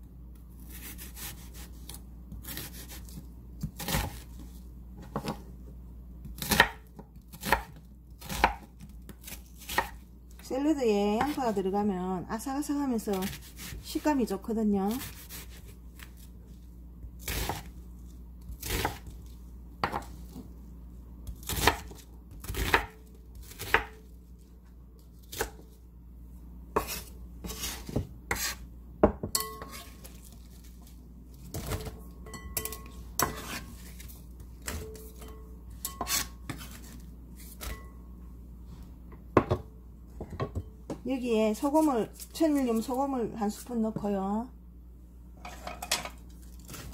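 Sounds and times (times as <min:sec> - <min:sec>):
knife chopping onion on wooden board: 0:00.7 - 0:04.3, 0:06.2 - 0:10.0, 0:13.1 - 0:14.3, 0:18.5 - 0:19.1, 0:19.8 - 0:20.4, 0:21.3 - 0:24.0, 0:26.8 - 0:29.9, 0:32.6 - 0:34.0.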